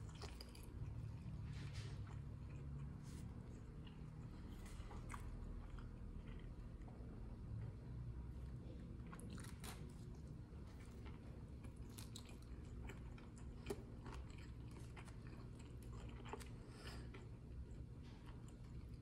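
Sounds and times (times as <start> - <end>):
chewing food: 0.0 - 19.0.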